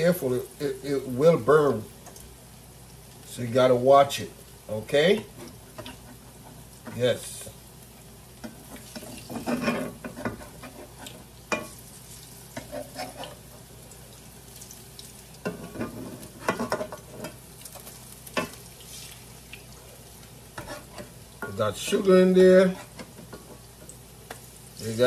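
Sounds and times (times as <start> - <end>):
fritters sizzling in hot oil: 0.0 - 25.0
metal spatula scraping pan: 9.0 - 11.7, 12.6 - 13.4, 20.6 - 23.1.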